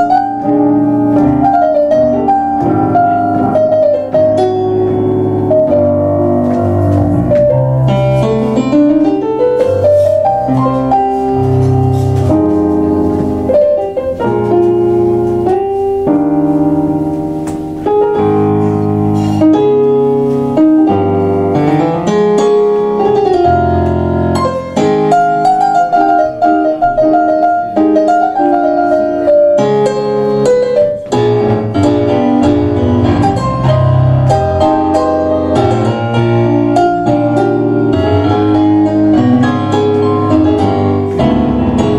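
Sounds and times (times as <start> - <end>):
piano tango: 0.0 - 41.9.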